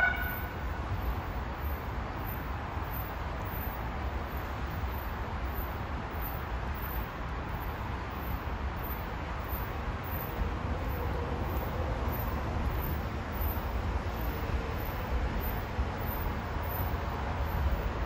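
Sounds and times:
distant train approaching: 0.0s - 1.2s
railway station rumble and hiss: 0.0s - 18.0s.

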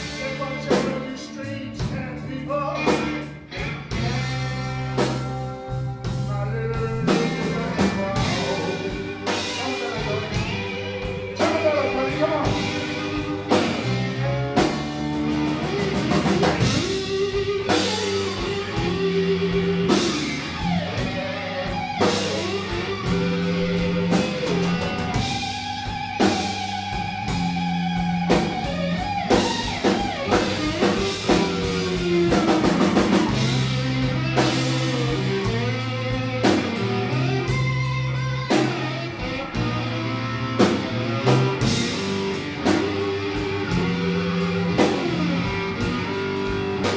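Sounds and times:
drum kit: 0.0s - 46.9s
electric bass: 0.0s - 46.9s
electric guitar: 0.0s - 46.9s
harmonica bending notes: 3.5s - 46.9s.

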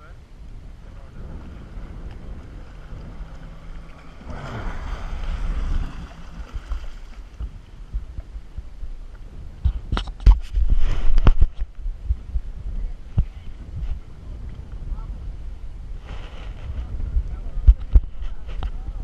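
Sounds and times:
jet ski engine running: 0.0s - 9.6s
water rushing along hull: 0.0s - 19.0s
wind on microphone: 0.0s - 19.0s.

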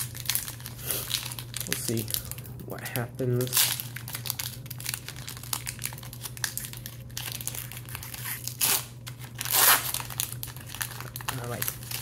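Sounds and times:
foil wrapper crinkling and ripping: 0.0s - 12.0s.

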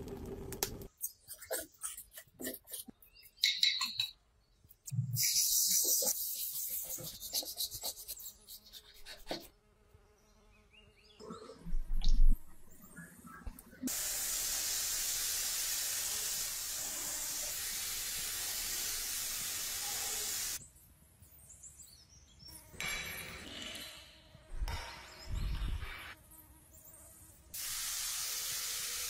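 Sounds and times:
paint spray gun hissing: 13.9s - 20.6s, 27.6s - 29.0s.

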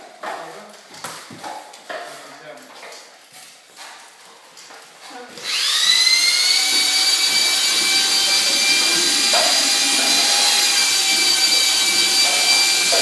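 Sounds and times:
power tool motor whining: 5.4s - 13.0s.

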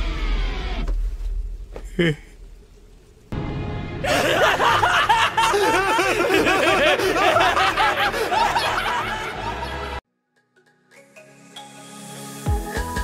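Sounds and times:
maniacal laughter: 4.0s - 10.0s.

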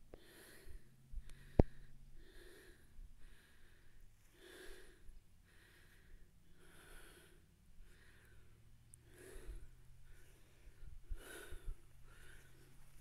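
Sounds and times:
breathing close to microphone: 0.1s - 13.0s.

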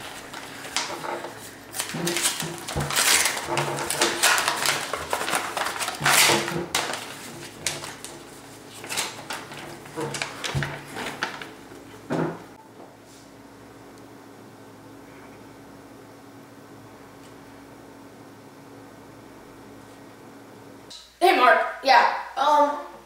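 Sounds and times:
paper envelope ripping: 0.0s - 11.6s
letter paper rustling: 0.0s - 12.1s.

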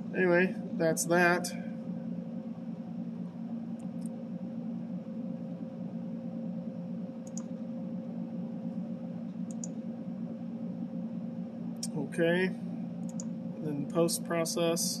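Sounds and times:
low hum: 0.0s - 15.0s
computer mouse clicks: 3.7s - 4.2s, 7.2s - 7.6s, 9.3s - 9.8s, 13.0s - 13.3s.

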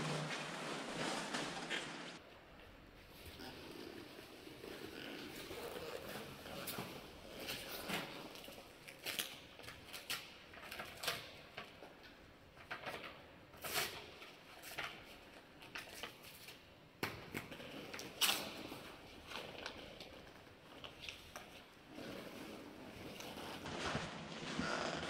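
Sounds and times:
gear and paper rustling: 17.6s - 24.6s.

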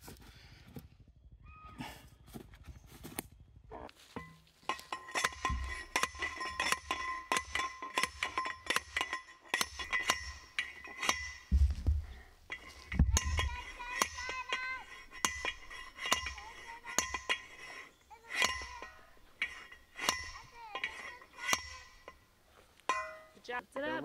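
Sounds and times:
post driver clanking on metal pipe: 4.2s - 22.2s, 22.8s - 23.4s.

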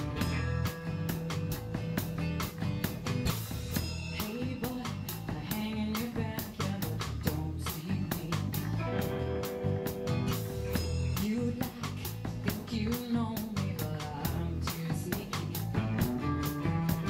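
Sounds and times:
strummed acoustic guitar: 0.0s - 5.7s
bass guitar: 0.0s - 17.0s
drum kit beat: 0.0s - 17.0s
electric guitar: 0.0s - 17.0s
woman singing: 4.0s - 9.2s, 10.8s - 17.0s.

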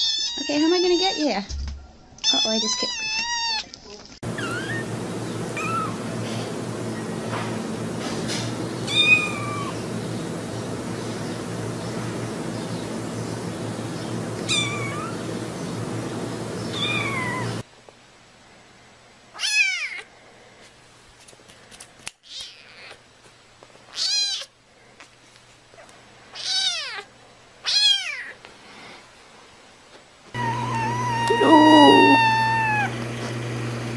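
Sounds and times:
background hum: 3.1s - 17.6s, 30.2s - 33.9s
kittens meowing: 4.3s - 4.9s, 5.5s - 6.0s, 8.9s - 9.8s, 14.4s - 15.2s, 16.7s - 17.6s, 30.4s - 33.0s.

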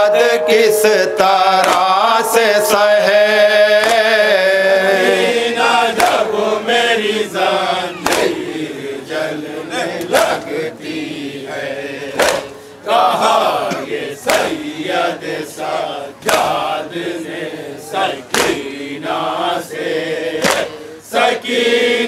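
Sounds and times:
men chanting a lament: 0.0s - 22.0s
chest-beating slaps: 0.4s - 3.2s, 3.8s - 4.2s, 6.0s - 6.2s, 7.9s - 8.4s, 10.0s - 10.6s, 12.2s - 12.6s, 14.2s - 14.6s, 16.2s - 16.6s, 18.3s - 18.6s, 20.4s - 20.8s.

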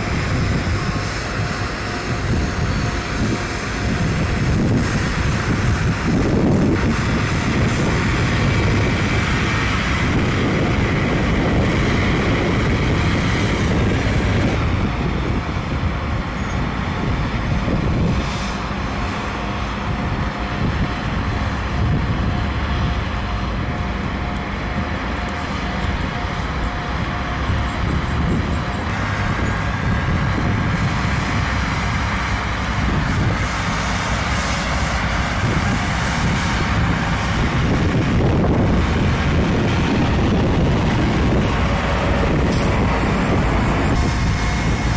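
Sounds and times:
truck engine rumble: 0.0s - 44.9s
rotary brooms sweeping snow: 17.8s - 27.6s, 28.4s - 37.7s, 38.7s - 44.9s.

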